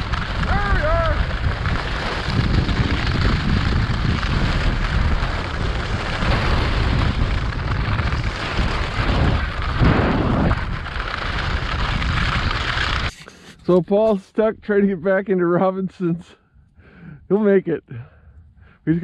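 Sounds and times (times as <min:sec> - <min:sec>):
wind buffeting microphone: 0:00.0 - 0:13.1
skis rasping on ice: 0:00.0 - 0:13.6.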